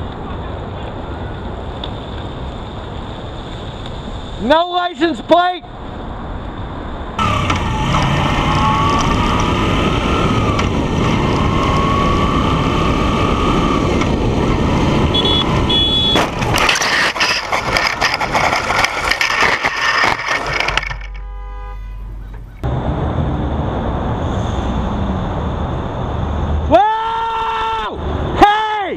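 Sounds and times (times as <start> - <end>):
road noise: 0.0 - 28.9
motorcycle engine whine: 5.8 - 26.7
motorcycle crash clatter and scraping: 15.7 - 21.5.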